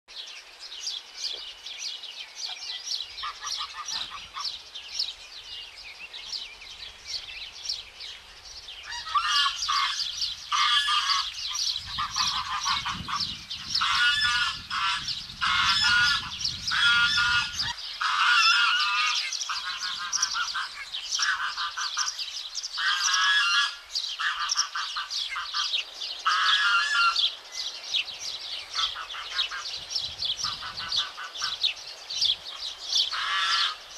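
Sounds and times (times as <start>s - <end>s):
goslings peeping: 2.5s - 4.6s, 8.8s - 28.1s, 28.7s - 33.9s
goose calls: 3.2s - 4.5s, 8.9s - 22.2s, 22.8s - 27.3s, 28.7s - 29.7s, 30.4s - 31.6s, 33.1s - 33.8s.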